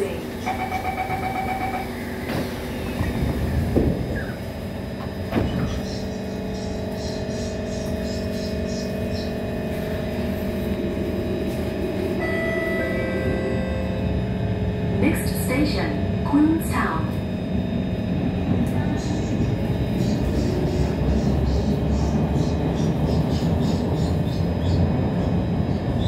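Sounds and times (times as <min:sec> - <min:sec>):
train electrical hum: 0:00.0 - 0:26.0
train doors thudding shut: 0:01.0 - 0:06.1.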